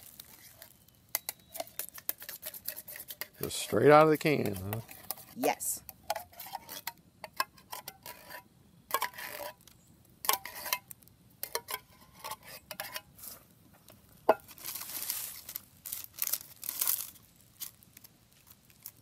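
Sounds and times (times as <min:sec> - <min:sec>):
spoon scraping in tin can: 0:00.2 - 0:09.6, 0:10.2 - 0:13.4.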